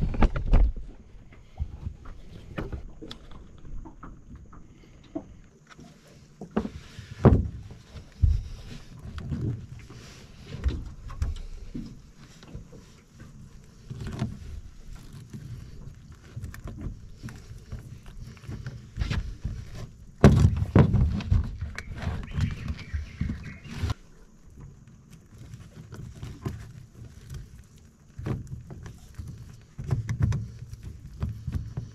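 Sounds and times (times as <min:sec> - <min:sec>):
knocks and thumps in boat: 0:00.0 - 0:31.9.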